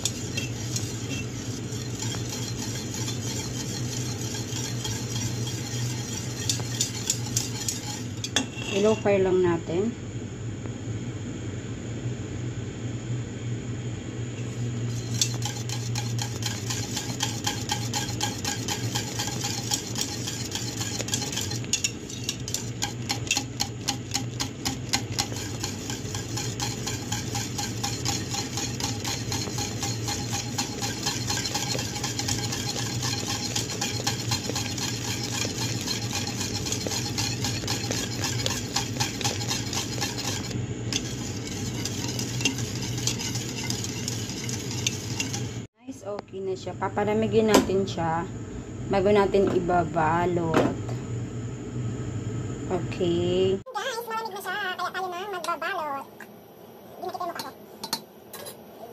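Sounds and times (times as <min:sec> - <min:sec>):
whisk scraping metal pot: 0:00.0 - 0:09.2, 0:14.8 - 0:45.7
low steady hum: 0:00.0 - 0:53.7.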